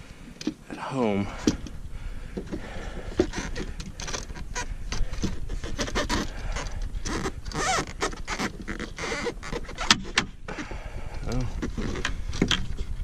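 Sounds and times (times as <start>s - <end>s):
fishing gear clicking on plastic: 1.4s - 10.3s.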